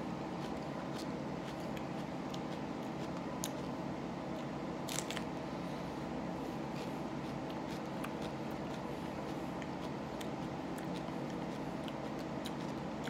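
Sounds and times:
background hum: 0.0 - 13.0
chewing mouth clicks: 6.8 - 13.0.

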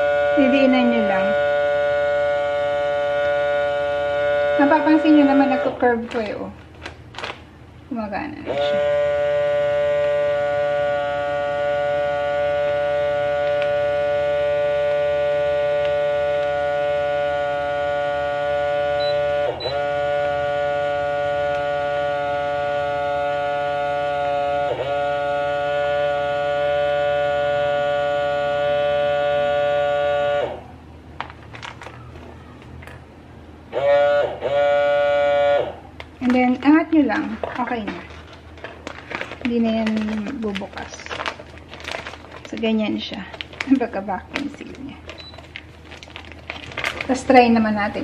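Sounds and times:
vacuum sealer pump humming: 0.0 - 48.0
faint plastic bag rustles: 5.8 - 7.5, 31.2 - 32.7, 36.0 - 48.0.

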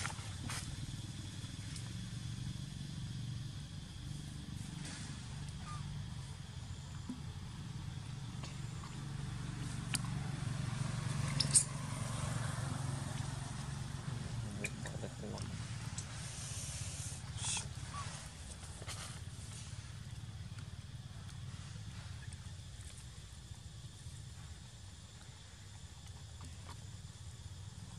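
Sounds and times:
low outdoor background rumble: 0.0 - 27.9.

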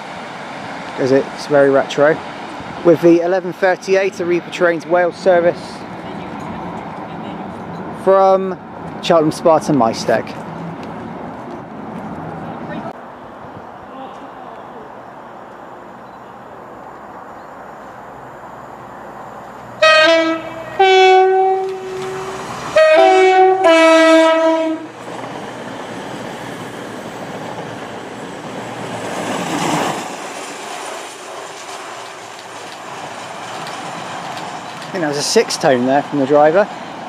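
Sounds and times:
train rumble and wheel noise: 0.0 - 37.0
two-tone train horn: 19.8 - 25.0.

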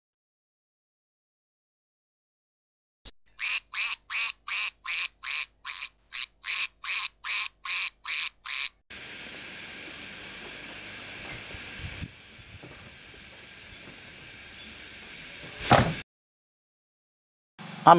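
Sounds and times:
duck quacks: 3.3 - 8.8
steady hiss: 8.9 - 16.0.

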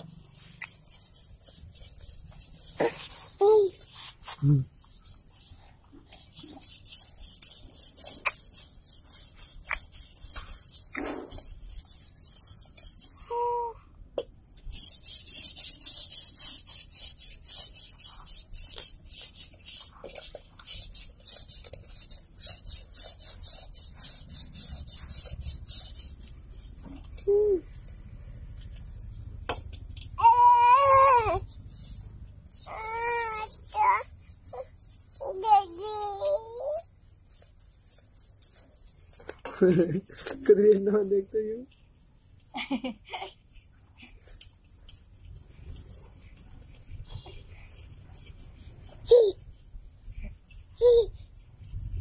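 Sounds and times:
scratchy rubbing on phone microphone: 0.0 - 13.4, 14.6 - 52.0
child's vocal sounds: 2.6 - 4.6, 13.2 - 13.8, 27.1 - 27.8, 30.2 - 31.4, 32.6 - 36.9.

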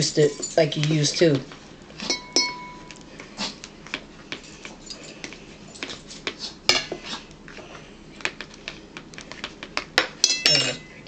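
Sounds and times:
utensils clinking on a plate: 2.0 - 3.0, 10.1 - 11.0.

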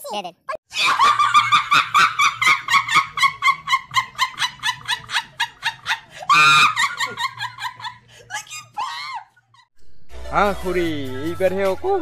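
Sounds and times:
woman laughing hysterically: 0.7 - 9.7
woman shrieking with laughter: 5.9 - 9.6.

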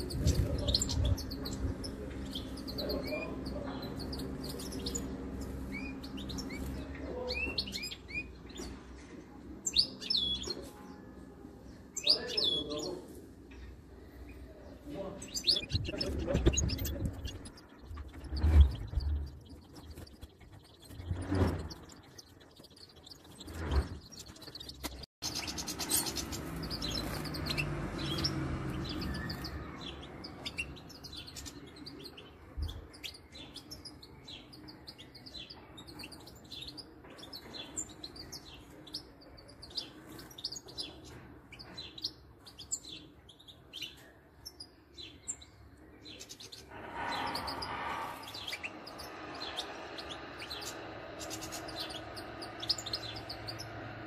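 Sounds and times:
small birds chirping: 0.0 - 54.0
loud noise: 46.7 - 52.5.

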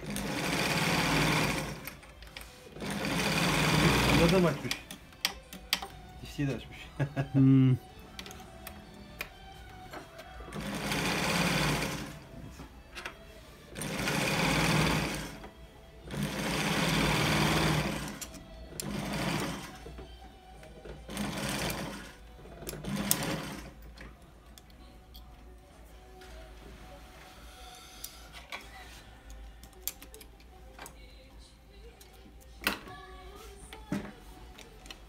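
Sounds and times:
industrial sewing machine running: 0.0 - 2.0, 2.8 - 4.7, 10.5 - 12.2, 13.8 - 15.4, 16.1 - 18.2, 18.8 - 19.8, 21.1 - 22.2, 22.8 - 23.7.

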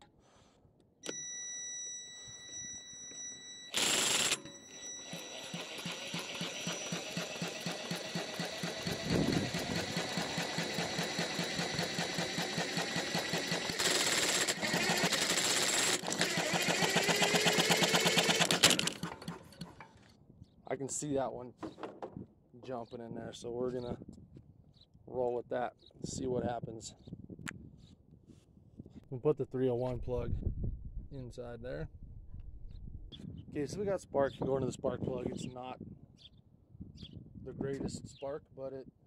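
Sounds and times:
power tool motor whine: 3.7 - 19.8
engine turning over chatter: 5.1 - 19.8.

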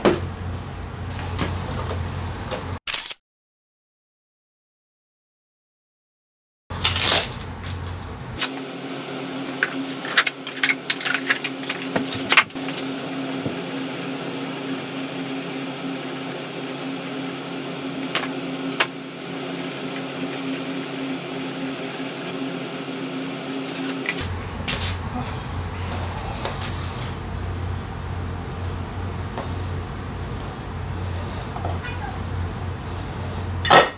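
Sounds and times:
paper rustling: 6.7 - 8.5
steady machine hum: 6.7 - 33.9.

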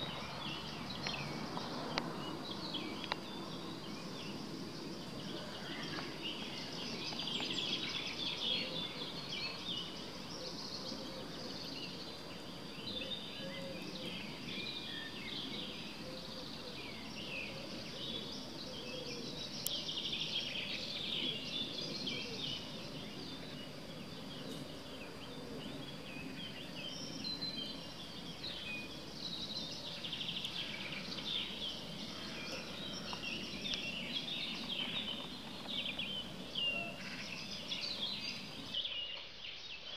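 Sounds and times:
low steady background noise: 0.0 - 39.9
songbirds singing and chirping: 0.0 - 39.9.

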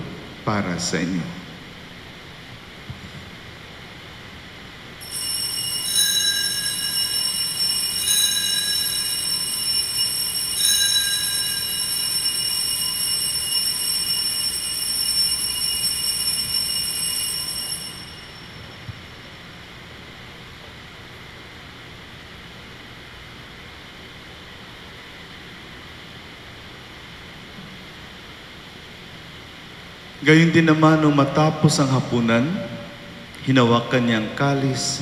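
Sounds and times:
altar bells ringing: 5.0 - 19.4.

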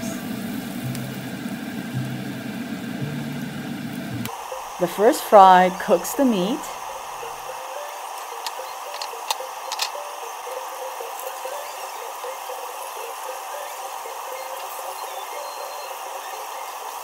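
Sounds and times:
meat sizzling in oil: 0.0 - 17.0
sharp clicks: 8.4 - 10.1.

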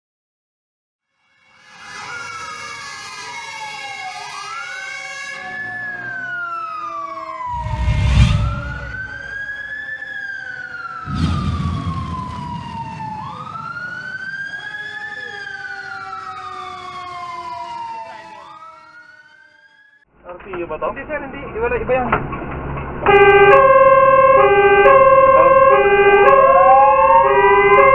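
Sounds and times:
fire truck siren wailing: 1.1 - 20.0, 23.0 - 27.9
low rumbling surges: 7.5 - 9.4, 11.0 - 13.8.

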